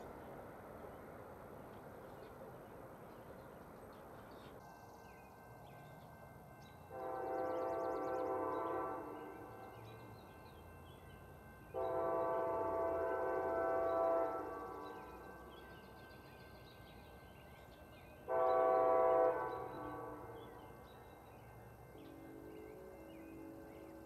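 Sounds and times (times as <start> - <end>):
locomotive air horn blasts: 6.9 - 9.5, 11.7 - 14.9, 18.3 - 20.4.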